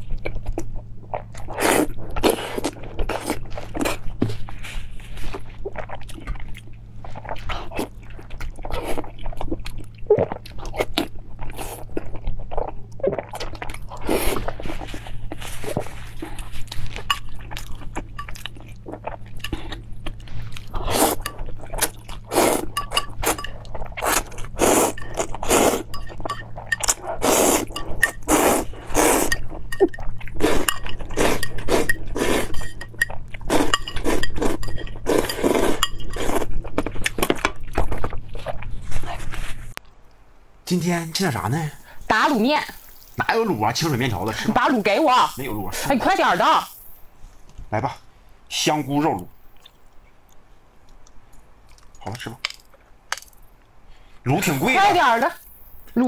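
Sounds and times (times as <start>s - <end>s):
chewing: 0.0s - 40.0s, 49.4s - 53.6s
noodles slurped: 19.0s - 25.9s, 26.8s - 32.7s
chopsticks clinking on metal plate: 22.7s - 23.6s, 24.9s - 27.0s, 27.7s - 28.3s, 29.3s - 36.3s.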